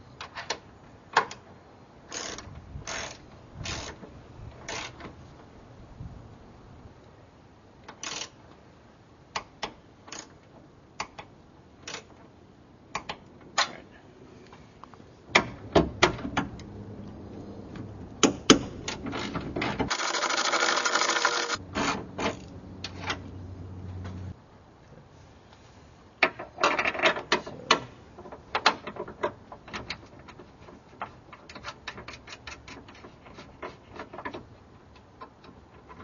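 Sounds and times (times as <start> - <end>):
ratchet wrench clicking: 19.9 - 21.6.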